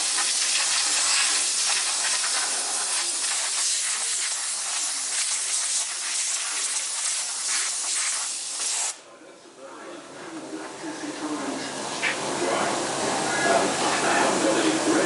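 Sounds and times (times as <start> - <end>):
compressed air hissing from hose: 0.0 - 9.0.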